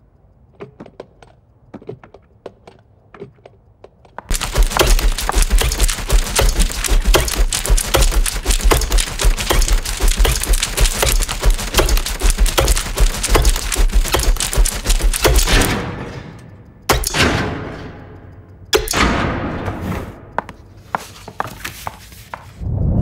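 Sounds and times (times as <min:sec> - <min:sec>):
staplers clacking: 0:02.6 - 0:19.3
paper being handled: 0:04.3 - 0:15.5.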